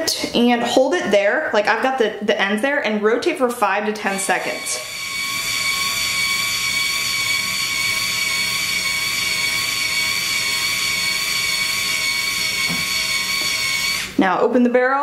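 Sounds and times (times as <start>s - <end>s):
hair iron motor whine: 4.0s - 14.2s.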